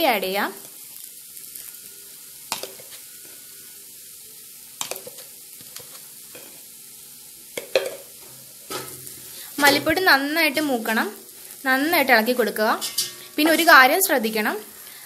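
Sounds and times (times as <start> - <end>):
onions sizzling in hot oil: 0.0 - 15.0.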